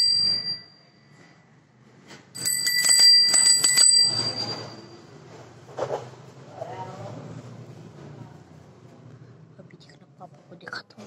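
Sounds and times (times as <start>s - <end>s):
bicycle bell ringing: 0.0s - 1.2s, 2.4s - 5.2s.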